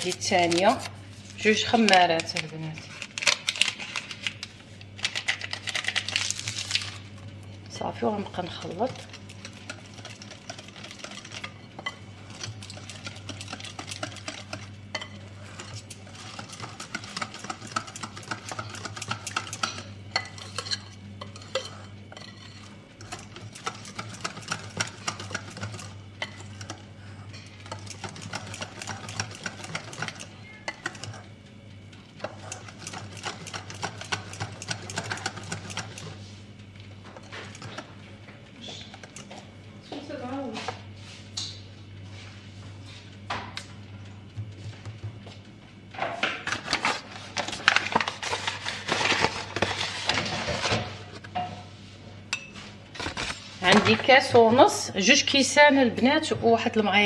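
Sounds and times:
whisk scraping glass bowl: 0:08.3 - 0:26.8, 0:27.4 - 0:31.2.

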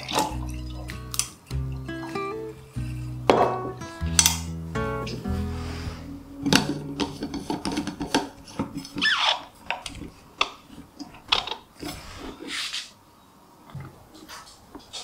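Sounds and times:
lid threads rasping: 0:06.4 - 0:11.6.

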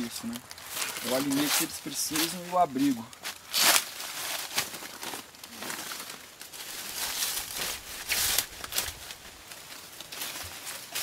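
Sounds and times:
plant stalk and leaves tearing: 0:00.3 - 0:06.2.

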